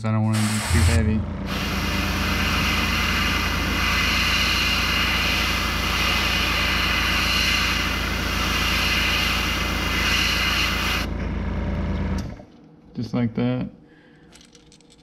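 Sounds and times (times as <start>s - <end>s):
steady low hum: 0.0s - 15.0s
airbrush spraying hiss: 0.4s - 11.1s.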